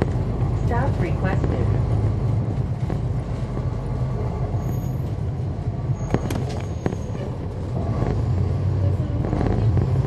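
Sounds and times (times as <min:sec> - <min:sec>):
bus diesel engine droning: 0:00.0 - 0:10.0.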